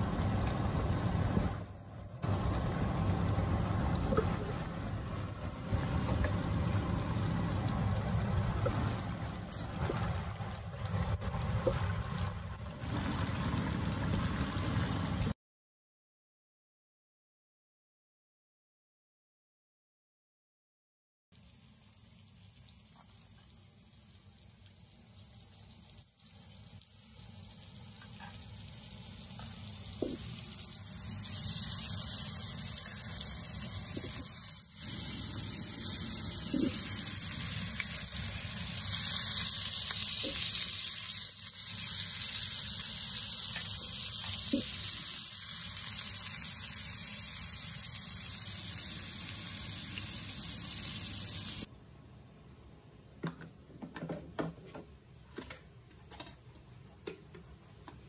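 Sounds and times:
fish sizzling in hot oil: 21.4s - 51.7s.

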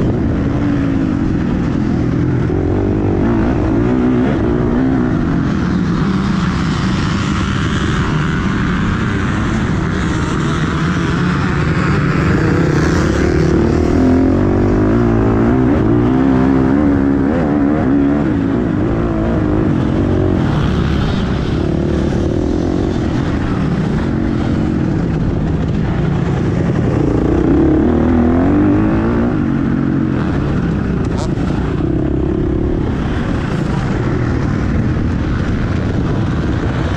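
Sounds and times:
motocross bike engine revving: 0.4s - 24.9s.

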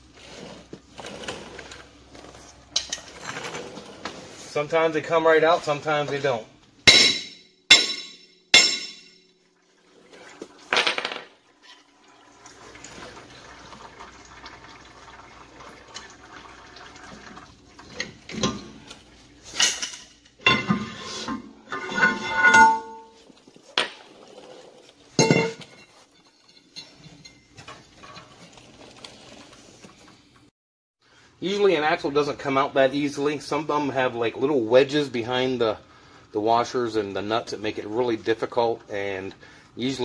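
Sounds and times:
metal clanks and clinks: 6.9s - 9.3s, 19.5s - 21.0s, 21.7s - 23.2s, 25.2s - 28.4s
oil trickling: 11.4s - 19.4s.

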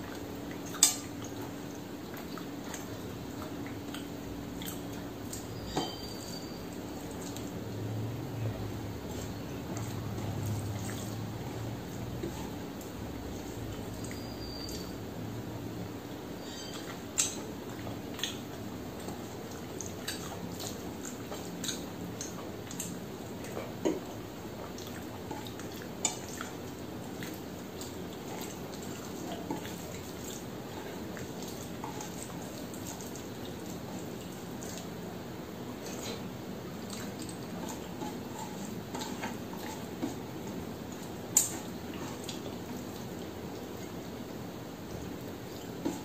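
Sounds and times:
wet chewing: 2.1s - 6.4s, 16.5s - 35.0s, 35.8s - 44.1s.

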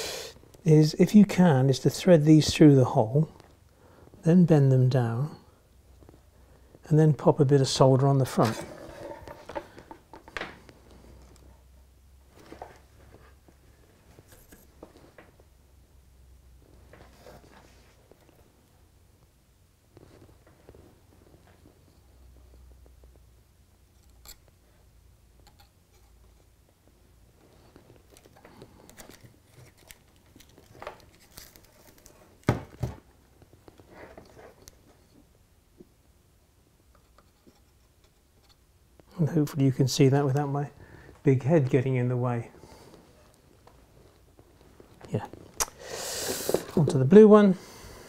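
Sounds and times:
soft handling clicks and rustles: 5.9s - 6.8s, 8.4s - 15.6s, 16.6s - 19.3s, 19.9s - 24.8s, 25.4s - 36.0s, 42.7s - 45.6s
hands rustling and clicking wire: 23.8s - 24.7s, 25.4s - 35.9s.

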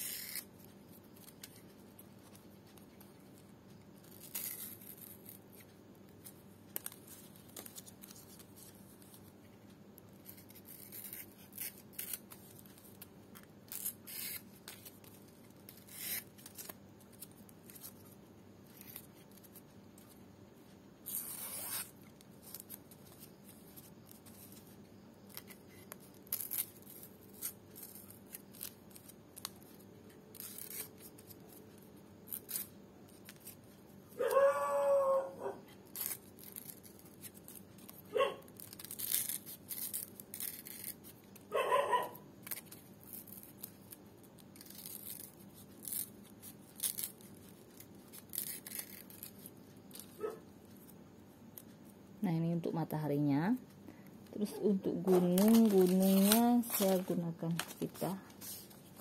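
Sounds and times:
knife cutting dried leaf: 0.0s - 0.5s, 4.1s - 5.4s, 10.2s - 12.8s, 13.7s - 17.9s, 25.3s - 29.6s, 30.3s - 31.5s, 35.8s - 41.2s, 48.1s - 50.1s, 55.0s - 58.6s
faint steady hum: 0.0s - 59.0s.

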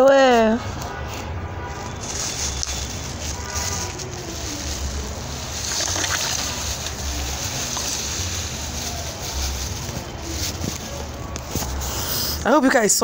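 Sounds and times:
powder pouring hiss: 4.5s - 10.6s.

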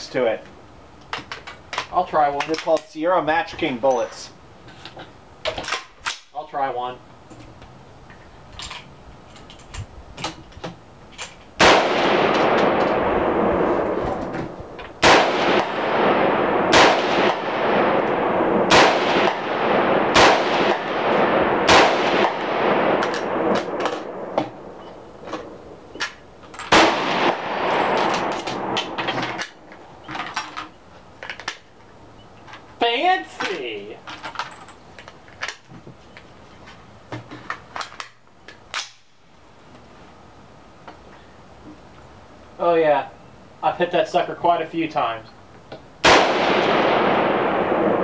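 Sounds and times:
rifle shots with echo: 11.6s - 25.8s, 26.7s - 29.7s, 46.0s - 48.0s.

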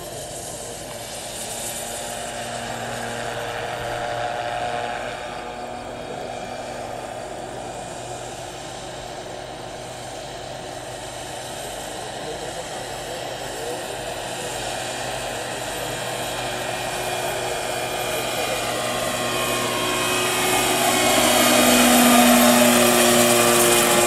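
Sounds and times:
helicopter rotor noise: 0.0s - 24.0s
helicopter turbine whine: 0.0s - 24.0s.

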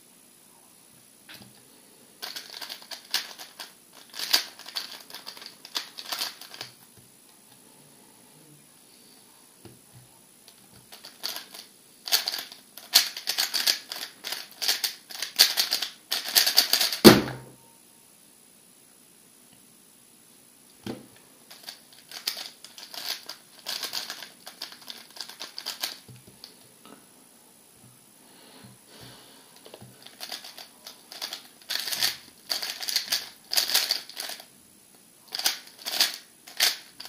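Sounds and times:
plastic cube clicks clattering: 2.2s - 6.8s, 30.0s - 34.4s, 35.3s - 37.0s
cube thump on mat: 17.0s - 17.5s.

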